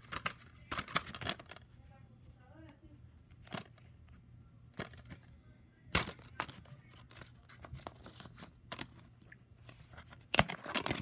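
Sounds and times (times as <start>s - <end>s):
plastic and paper rustling: 0.0s - 1.8s, 4.8s - 11.0s.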